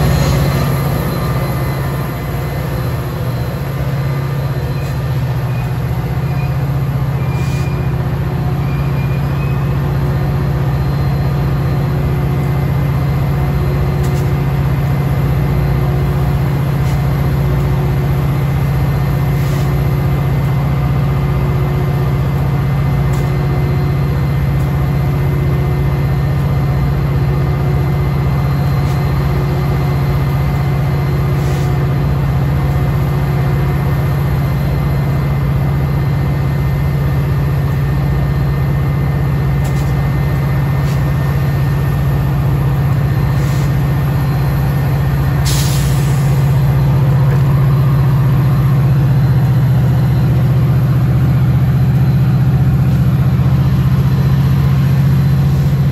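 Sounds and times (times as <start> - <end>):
air brakes hissing: 0.0 - 10.1, 19.3 - 20.0, 31.2 - 32.0, 39.6 - 40.1, 40.7 - 41.9, 43.1 - 48.3
diesel locomotive humming: 0.0 - 55.9.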